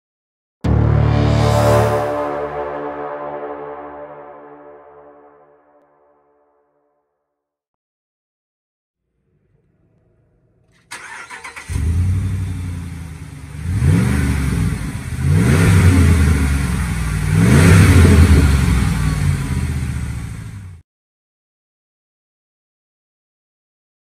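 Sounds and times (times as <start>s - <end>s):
engine revving: 0.7s - 4.0s, 10.6s - 20.8s
engine cranking and starting: 10.7s - 12.5s.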